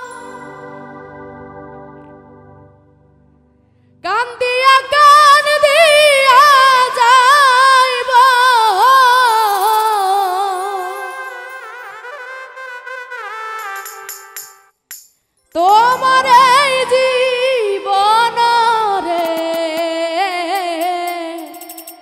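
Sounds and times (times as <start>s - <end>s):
woman singing with vibrato: 0.0s - 1.2s, 4.0s - 11.5s, 15.6s - 22.0s
instrumental chord: 0.0s - 4.1s, 15.6s - 19.5s.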